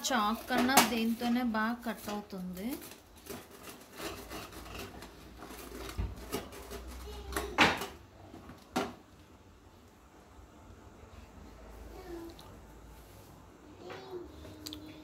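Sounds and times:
sandwich cutter crunching bread: 0:02.8 - 0:07.1.

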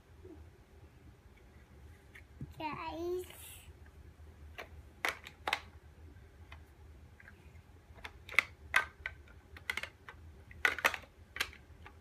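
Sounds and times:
plastic building blocks clicking: 0:04.5 - 0:05.7, 0:07.2 - 0:12.0.

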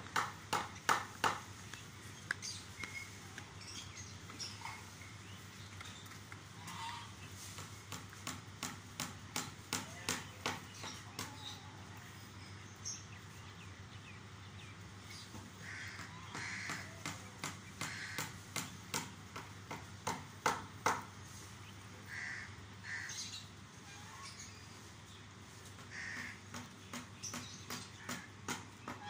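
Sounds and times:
short caw-like bird calls: 0:15.6 - 0:16.9, 0:22.1 - 0:23.3, 0:25.9 - 0:26.4.

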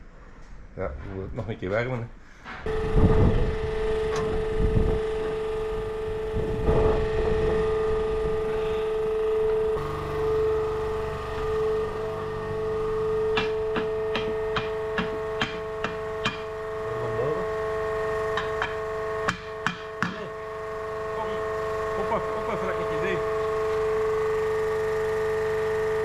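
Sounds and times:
steady hum: 0:02.1 - 0:26.0
hammer striking hot steel: 0:13.3 - 0:16.6, 0:18.3 - 0:20.4.

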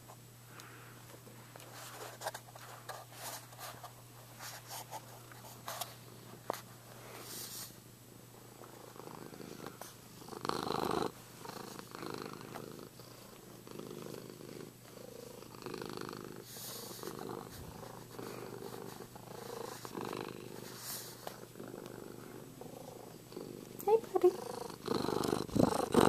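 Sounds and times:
cat purring: 0:08.5 - 0:26.0.

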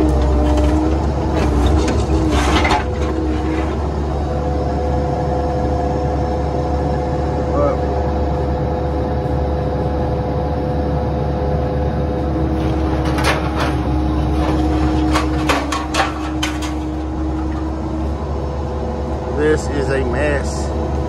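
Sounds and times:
diesel engine running with whine: 0:00.0 - 0:21.0
bucket clanking on sheet metal: 0:12.7 - 0:17.2.

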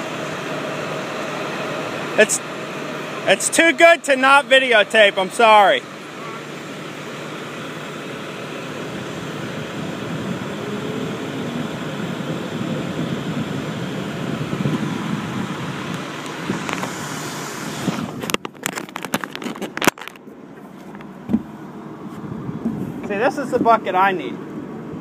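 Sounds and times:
truck engine running: 0:00.0 - 0:25.0
phone handling knocks and rustling: 0:18.3 - 0:21.6.

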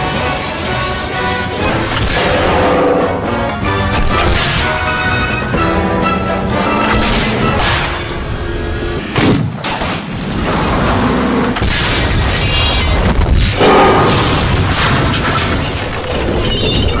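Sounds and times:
clattering debris: 0:11.6 - 0:17.0.

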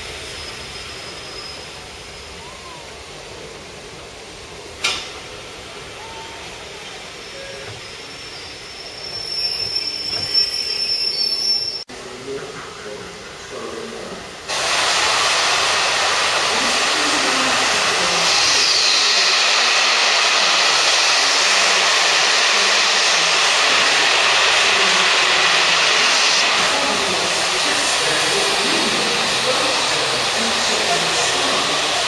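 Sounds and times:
steam hissing from locomotive: 0:13.1 - 0:32.0.

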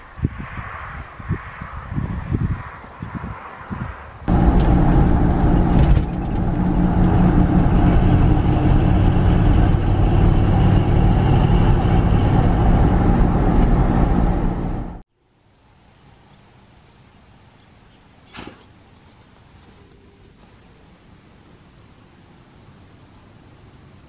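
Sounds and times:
wind buffeting microphone: 0:00.0 - 0:15.0
road and tyre noise: 0:00.0 - 0:24.0
car engine drone: 0:04.2 - 0:15.0.

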